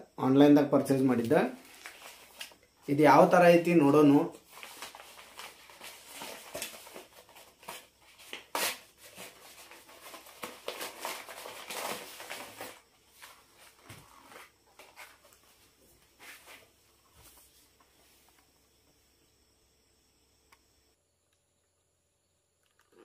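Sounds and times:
paper parcel rustling: 0:01.1 - 0:02.6, 0:04.0 - 0:15.6.

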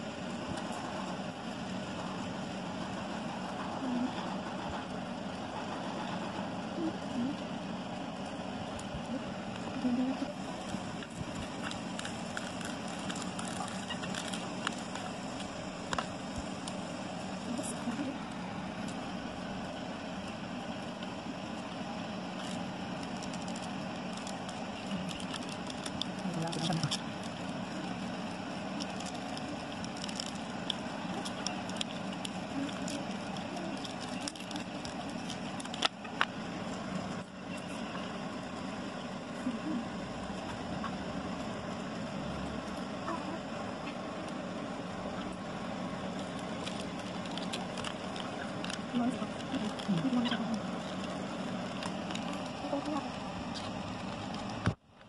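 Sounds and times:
cardboard crackling and clicking: 0:10.3 - 0:19.1, 0:20.6 - 0:37.9, 0:45.9 - 0:54.8.

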